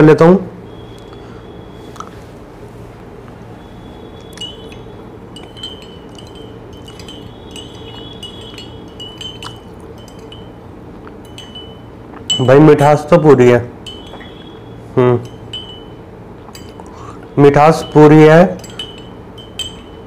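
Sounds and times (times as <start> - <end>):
teaspoon clinking in teacup: 4.3 - 13.0, 13.8 - 20.0.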